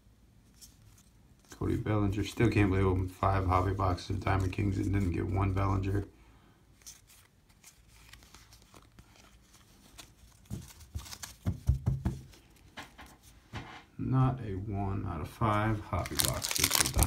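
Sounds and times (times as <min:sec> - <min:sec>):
cards flipped by hand: 0:06.8 - 0:11.5.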